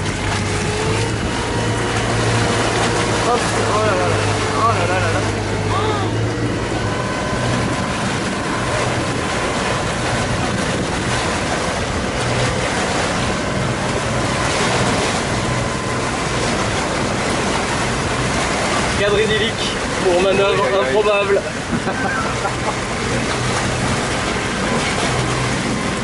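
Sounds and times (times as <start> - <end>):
motorboat engine running: 0.0 - 26.0
water rushing past hull: 0.0 - 26.0
wind buffeting microphone: 0.0 - 26.0.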